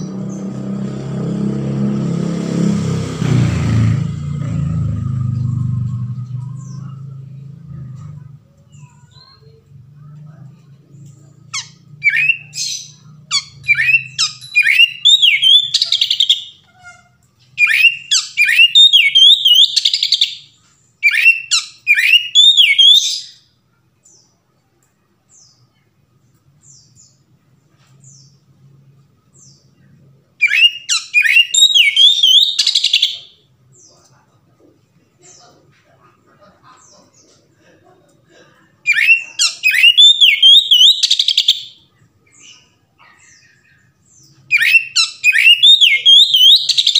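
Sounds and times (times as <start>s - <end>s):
bird singing whistled phrases: 11.6s - 16.7s, 17.6s - 23.4s, 30.4s - 33.4s, 38.9s - 42.6s, 44.5s - 46.9s.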